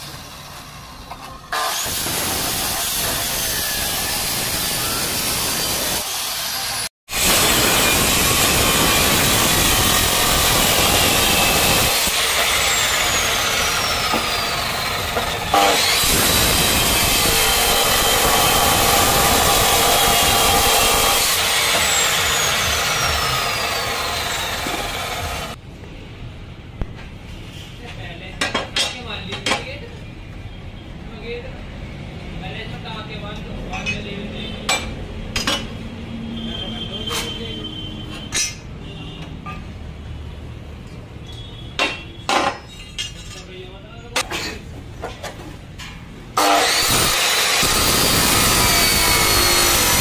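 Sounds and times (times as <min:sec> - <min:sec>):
cut-off saw grinding steel: 0:00.0 - 0:25.6, 0:46.4 - 0:50.0.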